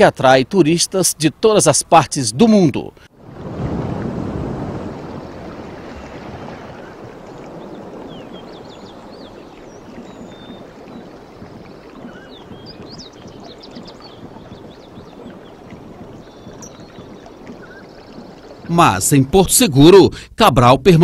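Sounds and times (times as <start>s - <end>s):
bird chirps: 6.8s - 18.7s.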